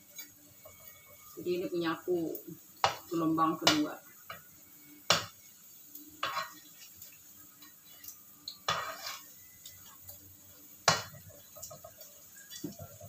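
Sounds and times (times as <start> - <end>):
food frying: 0.0 - 13.0
metal spatula scraping a frying pan: 6.2 - 7.0, 8.6 - 10.0.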